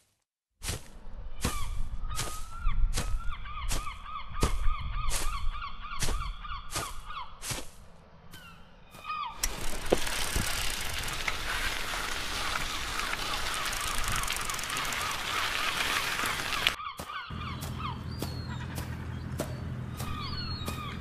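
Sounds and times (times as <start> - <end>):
birds honking: 11.5 - 21.0.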